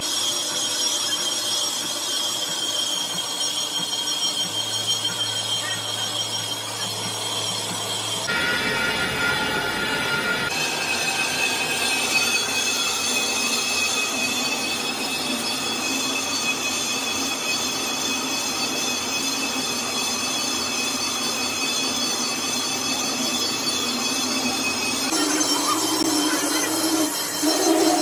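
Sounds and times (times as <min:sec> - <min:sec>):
high-pitched ringing tone: 0:00.0 - 0:28.0
metal lathe cutting: 0:00.0 - 0:28.0.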